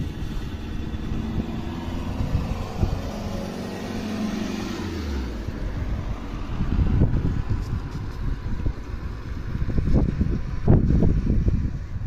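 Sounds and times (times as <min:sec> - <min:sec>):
car driving through water: 0:00.0 - 0:07.8
wind rumbling on microphone: 0:00.0 - 0:12.0.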